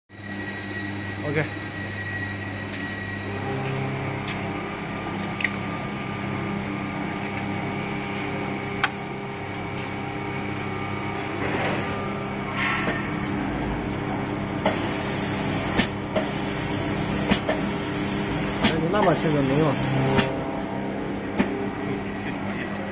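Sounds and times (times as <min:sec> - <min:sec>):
spray painting machine humming: 0:02.7 - 0:22.9
loud spray booth hiss: 0:14.6 - 0:20.4.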